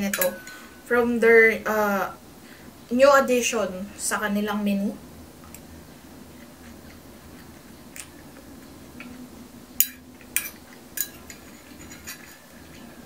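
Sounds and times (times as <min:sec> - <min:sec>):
spoon clinking against bowl: 0:00.1 - 0:00.7.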